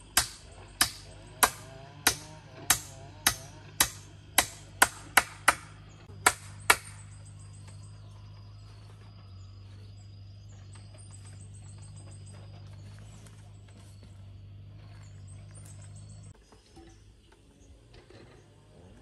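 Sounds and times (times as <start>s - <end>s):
hammer striking wood: 0.1s - 7.1s.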